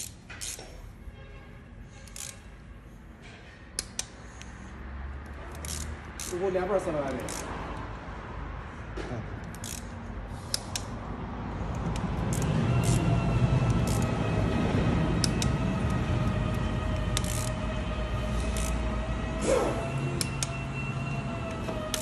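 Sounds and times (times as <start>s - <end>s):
metallic wrench clicks: 0.0s - 0.8s, 2.0s - 2.4s, 3.8s - 4.5s, 5.2s - 6.4s, 7.0s - 7.5s, 9.4s - 10.9s, 11.9s - 13.0s, 13.7s - 14.1s, 17.2s - 17.5s
droning machine whine: 11.9s - 22.0s.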